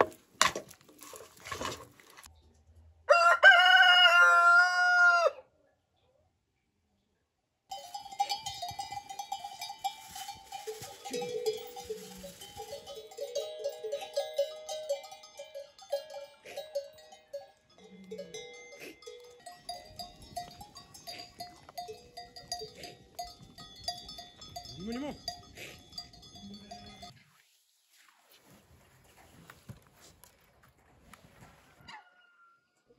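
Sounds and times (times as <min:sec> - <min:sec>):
cattle bells clanking: 0:07.7 - 0:27.1.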